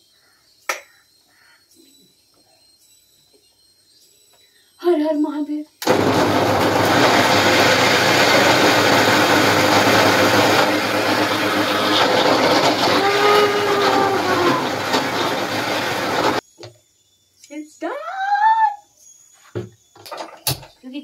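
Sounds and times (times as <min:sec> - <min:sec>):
mixer grinder whirring: 0:05.8 - 0:16.4.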